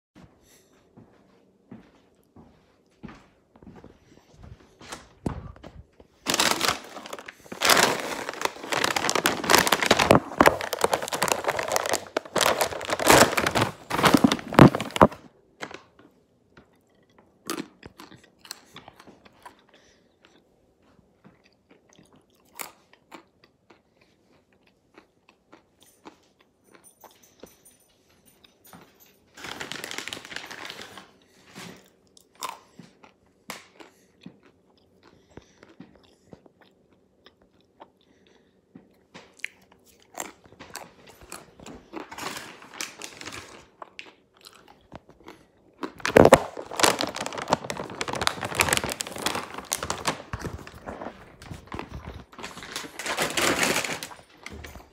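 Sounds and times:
person chewing almonds: 0:06.3 - 0:15.2, 0:16.5 - 0:26.8, 0:31.2 - 0:53.4.

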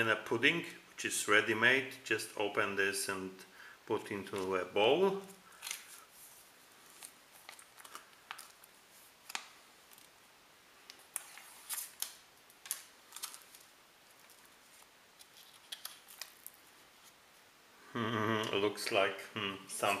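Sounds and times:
foil pouch crinkling: 0:06.8 - 0:10.2, 0:10.9 - 0:17.2.

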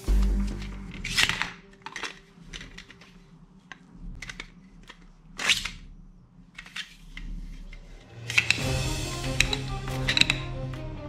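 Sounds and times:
louder handling noise: 0:07.7 - 0:10.5
toy sword handling clicks: 0:08.2 - 0:08.7, 0:09.3 - 0:10.4.

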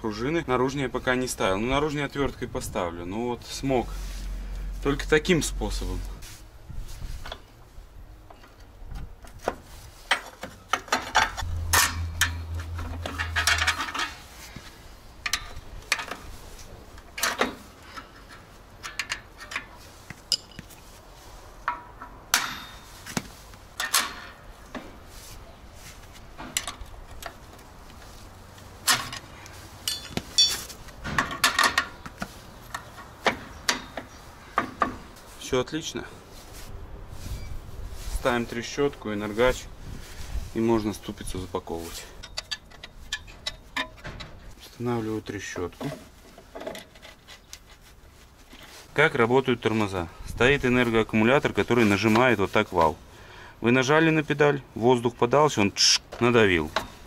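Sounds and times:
screwdriver clinking on metal springs: 0:29.9 - 0:30.6.

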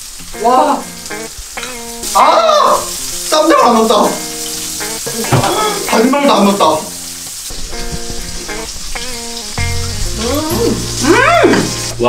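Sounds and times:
steady high hiss: 0:00.0 - 0:12.0
background music with held notes: 0:00.2 - 0:12.0
person's wordless vocal sounds: 0:05.1 - 0:05.9, 0:10.1 - 0:11.7.

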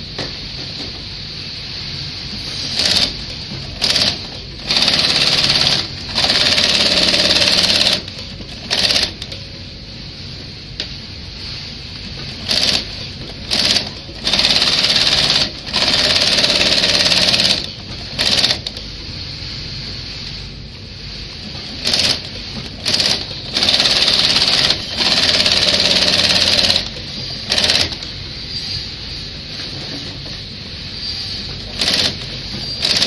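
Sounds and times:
low steady machine noise: 0:00.0 - 0:33.0
sewing machine stitching: 0:02.7 - 0:09.2, 0:12.3 - 0:18.7, 0:21.7 - 0:28.0, 0:31.7 - 0:33.0.

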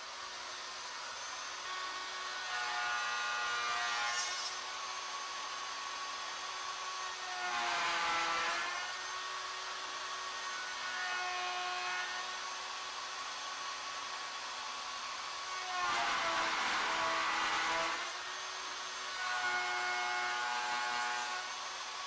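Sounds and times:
router bit cutting wood: 0:00.0 - 0:22.0
wood router motor whine: 0:00.0 - 0:22.0.

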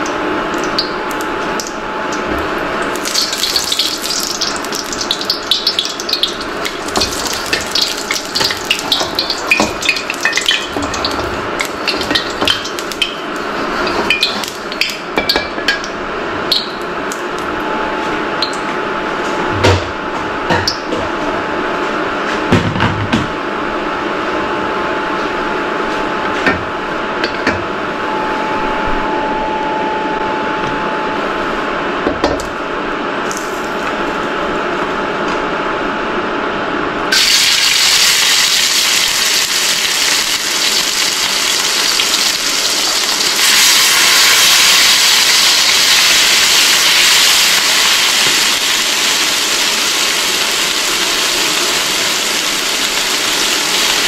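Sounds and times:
meat searing sizzle: 0:00.0 - 0:15.1, 0:37.1 - 0:54.0
oil sizzling in a wok: 0:00.0 - 0:15.1, 0:37.1 - 0:54.0.

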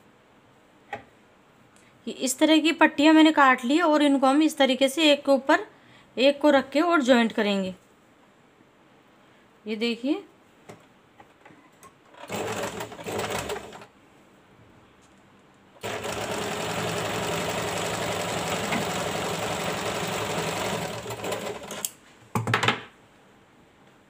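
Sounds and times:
sewing machine stitching: 0:12.1 - 0:13.9, 0:15.8 - 0:21.9.

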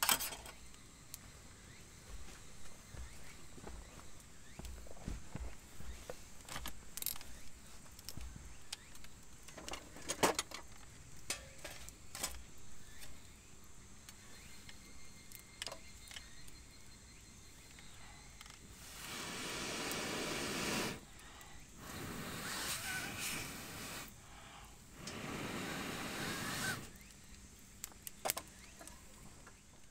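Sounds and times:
wood fire crackling: 0:18.6 - 0:29.9
sticks sliding into fire: 0:18.7 - 0:21.1, 0:21.8 - 0:24.1, 0:25.0 - 0:27.1
fire popping: 0:18.7 - 0:21.2, 0:21.8 - 0:24.2, 0:24.9 - 0:28.6.

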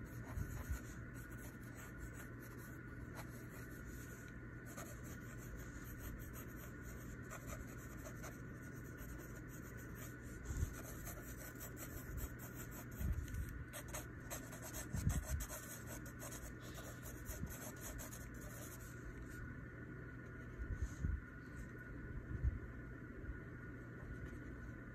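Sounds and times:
pencil scratching on paper: 0:00.0 - 0:18.9.

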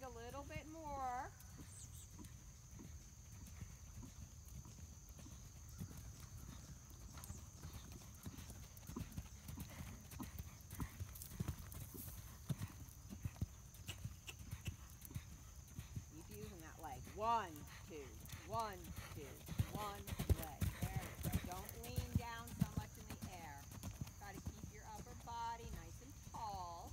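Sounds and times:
horse hoofbeats on sand: 0:02.2 - 0:26.9.

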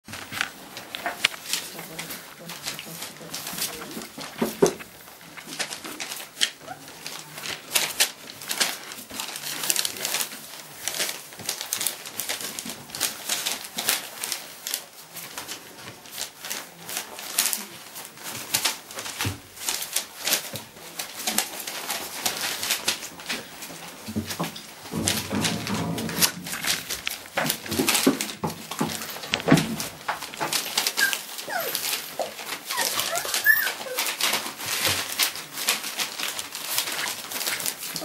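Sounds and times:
puppies scuffling on blanket and paper: 0:00.1 - 0:38.0
puppy grunts and squeaks: 0:30.9 - 0:34.2.

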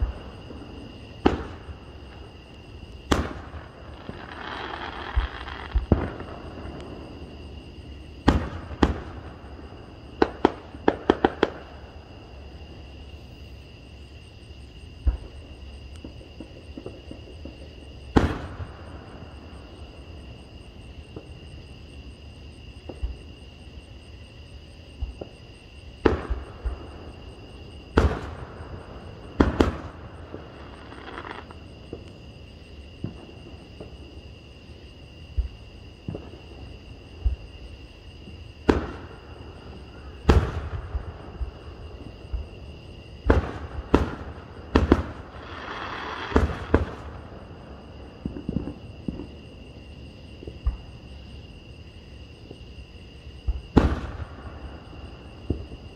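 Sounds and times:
fireworks crackling: 0:00.0 - 0:07.4, 0:27.9 - 0:32.1, 0:43.3 - 0:47.4.

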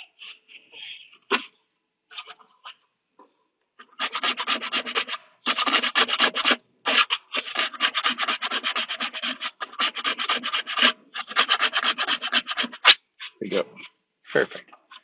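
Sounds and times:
hand file scraping plastic: 0:00.0 - 0:01.5, 0:03.8 - 0:13.9, 0:14.7 - 0:15.0.

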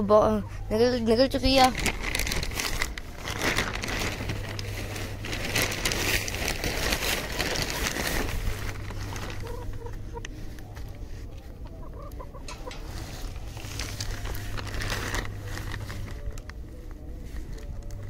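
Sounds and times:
plastic tarpaulin rustling: 0:01.0 - 0:11.3, 0:12.5 - 0:18.0
chicken clucking: 0:09.0 - 0:13.6.

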